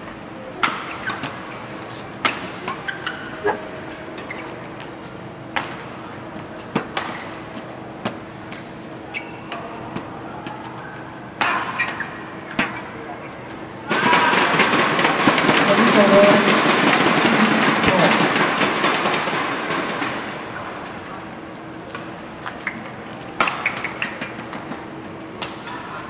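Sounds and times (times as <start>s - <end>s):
rackets hitting shuttlecock: 0.6s - 1.4s, 5.5s - 10.7s, 21.9s - 26.0s.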